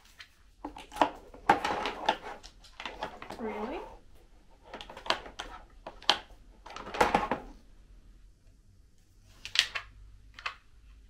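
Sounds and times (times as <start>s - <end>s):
shelf parts knocking together: 4.7s - 7.6s.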